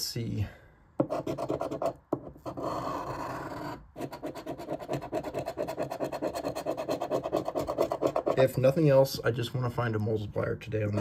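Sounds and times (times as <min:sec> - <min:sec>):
coin scraping scratch card: 0:01.0 - 0:08.4.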